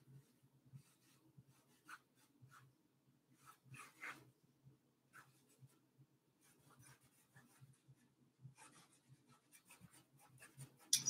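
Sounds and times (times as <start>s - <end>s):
paintbrush strokes on canvas: 0.0s - 4.4s, 5.1s - 11.0s.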